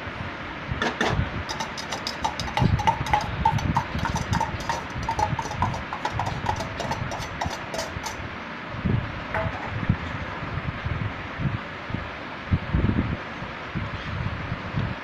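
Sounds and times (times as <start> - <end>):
metal spoon scraping a pan: 0.8 - 8.2.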